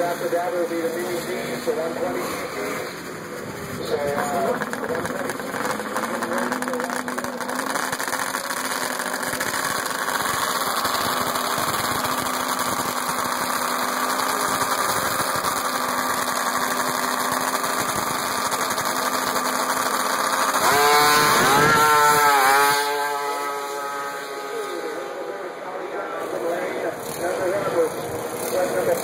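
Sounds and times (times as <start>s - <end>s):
snowmobile engines revving: 0.0s - 29.0s.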